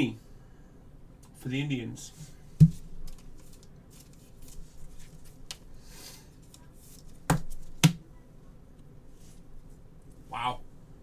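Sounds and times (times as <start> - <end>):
cards rustling and sliding: 2.8 - 5.6, 6.4 - 7.7.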